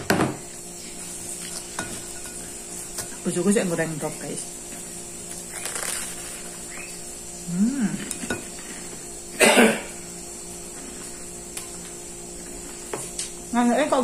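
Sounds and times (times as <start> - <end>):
steady background hum: 0.0 - 14.0
person humming from throat: 7.4 - 8.2.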